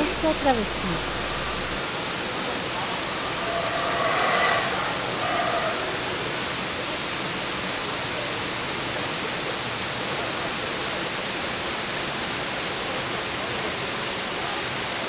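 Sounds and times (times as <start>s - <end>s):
faint pitched sound: 0.0s - 1.9s.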